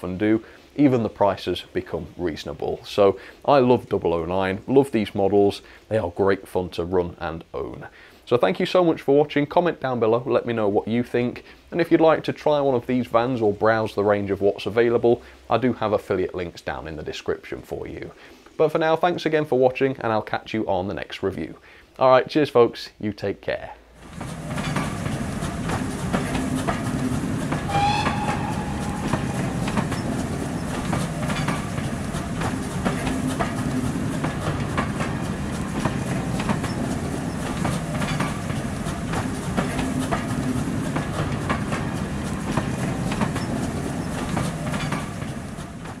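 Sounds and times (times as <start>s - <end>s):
clicking over rail joints: 24.0s - 46.0s
model train humming: 24.0s - 46.0s
high whistling tone: 27.7s - 30.8s.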